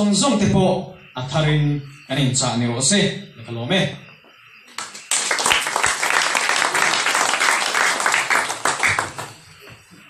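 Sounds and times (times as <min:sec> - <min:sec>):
audience applauding: 0:04.7 - 0:09.7.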